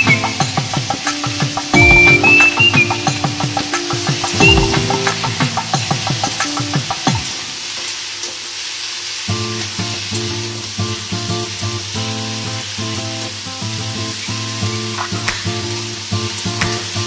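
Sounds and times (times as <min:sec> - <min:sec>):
instrumental background music: 0:00.0 - 0:07.3
vegetables sizzling in oil: 0:00.0 - 0:17.0.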